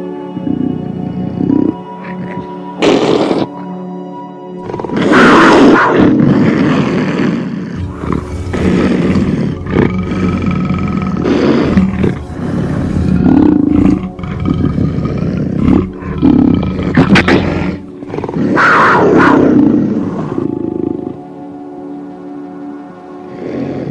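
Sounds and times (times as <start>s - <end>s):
big cat roaring: 4.6s - 21.4s.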